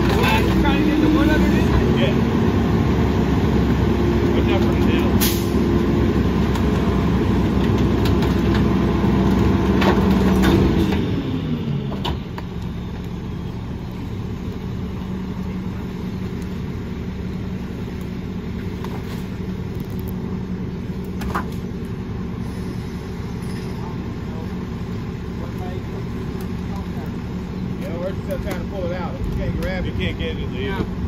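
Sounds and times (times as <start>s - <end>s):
diesel engine running: 0.0s - 31.0s
tree branches cracking: 17.5s - 20.3s.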